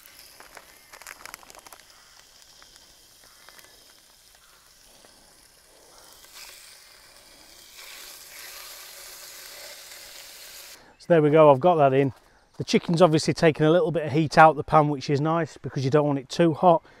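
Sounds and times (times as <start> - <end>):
chicken sizzling in hot oil: 0.0 - 10.8.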